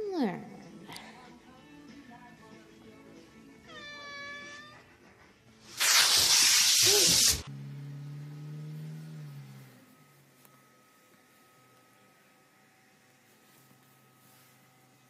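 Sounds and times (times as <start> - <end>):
cat meowing: 3.6 - 4.9
cat hissing: 3.7 - 5.1, 5.7 - 7.5
low steady tone: 7.5 - 15.0.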